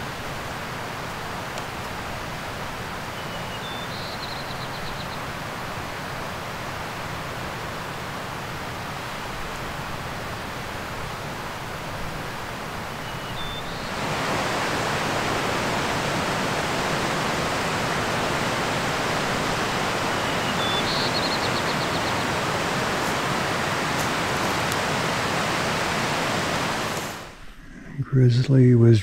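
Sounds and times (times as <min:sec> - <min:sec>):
bird singing with trill: 0:03.2 - 0:05.2, 0:13.0 - 0:13.9, 0:20.0 - 0:22.4
steady rushing noise: 0:05.3 - 0:28.3.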